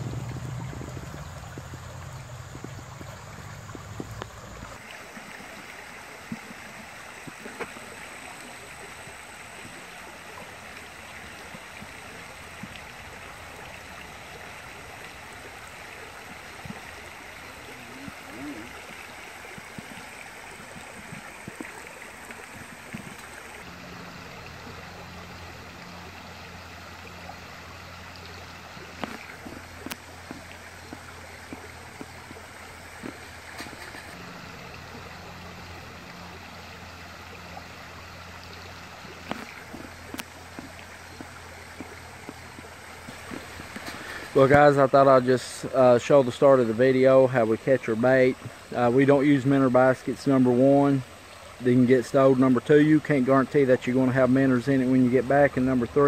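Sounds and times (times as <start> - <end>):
low rumble: 0.0 - 4.8
waterfall running water: 0.0 - 56.0.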